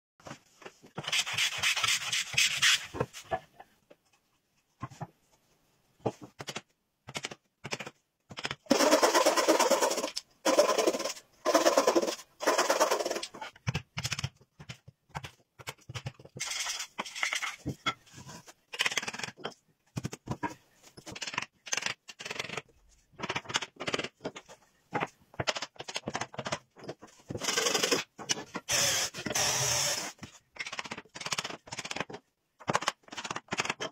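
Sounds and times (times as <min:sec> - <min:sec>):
cordless drill into wood: 0:28.7 - 0:30.2.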